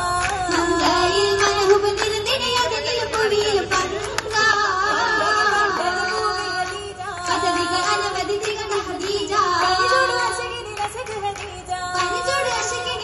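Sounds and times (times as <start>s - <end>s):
group singing in unison: 0.0s - 13.0s
hand claps: 0.0s - 13.0s.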